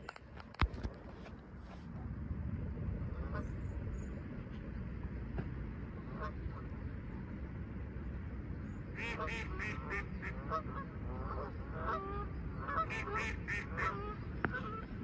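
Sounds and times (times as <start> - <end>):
low steady rumble: 0.0 - 15.0
waterfowl calling: 3.1 - 4.1, 6.0 - 6.7, 8.9 - 15.0.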